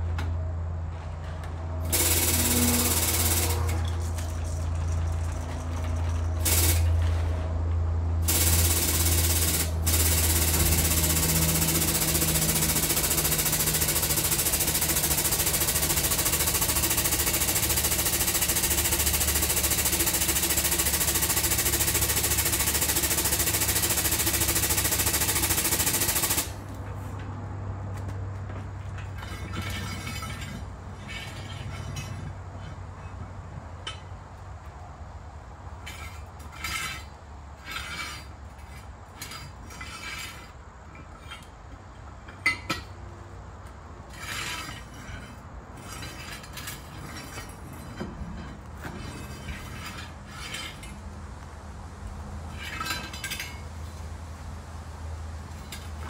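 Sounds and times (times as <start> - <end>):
steady low hum: 0.0 - 51.8
air pump chattering: 1.9 - 5.3, 6.4 - 7.0, 8.2 - 26.6.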